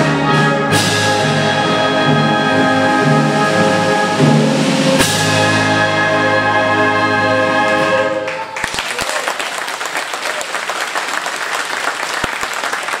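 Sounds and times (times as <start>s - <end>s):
wind band chord: 0.0s - 8.2s
audience applause: 8.3s - 13.0s.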